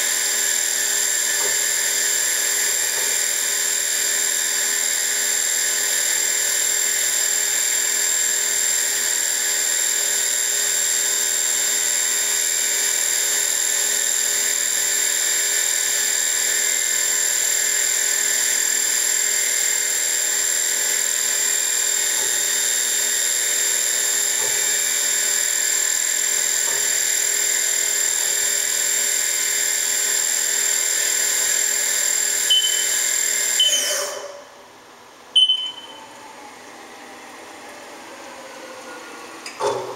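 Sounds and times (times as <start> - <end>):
mill spindle whine: 0.0 - 39.9
short keypad beeps: 32.5 - 33.0, 33.6 - 34.0, 35.4 - 36.1.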